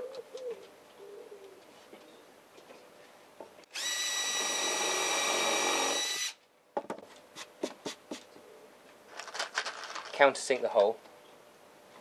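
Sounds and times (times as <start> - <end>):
cordless drill boring wood: 3.7 - 6.4.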